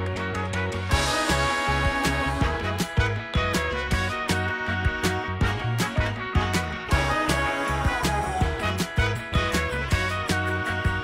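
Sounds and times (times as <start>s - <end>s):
instrumental music: 0.0s - 11.0s
repeating bass line: 0.0s - 11.0s
steady drum beat: 0.9s - 11.0s.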